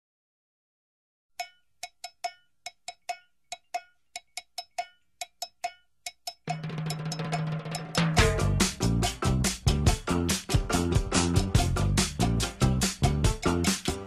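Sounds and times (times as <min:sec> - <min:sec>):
pitched percussion strikes: 0:01.4 - 0:14.0
band with drums playing: 0:06.4 - 0:14.0.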